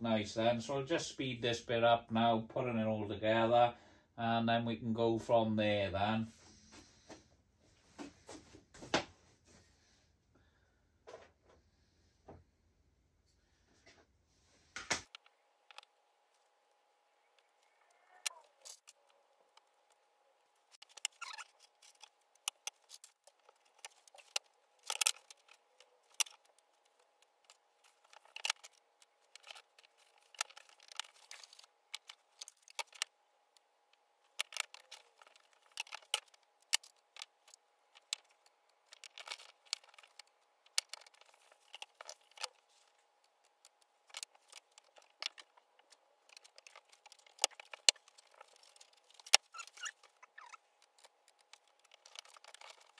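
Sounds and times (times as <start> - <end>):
light wooden clicks and knocks: 20.6 - 52.9.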